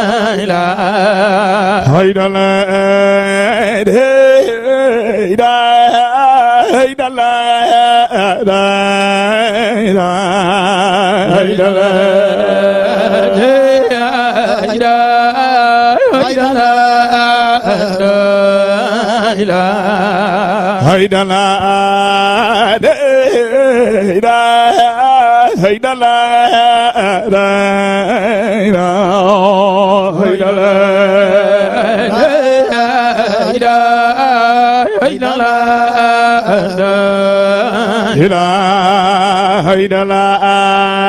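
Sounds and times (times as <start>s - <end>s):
man chanting into microphone: 0.0s - 41.0s
low sustained drone: 11.7s - 14.4s.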